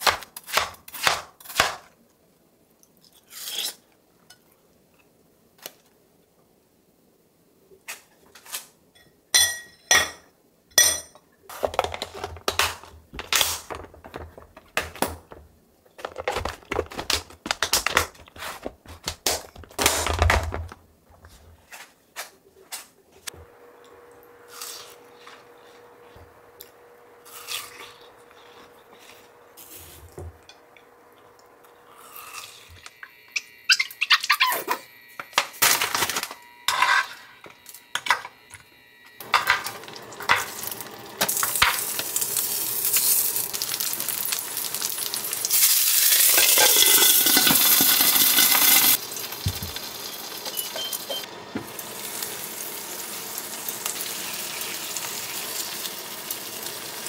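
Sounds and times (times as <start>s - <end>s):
plastic containers handled: 11.6s - 22.9s
electric fan humming: 23.3s - 57.0s.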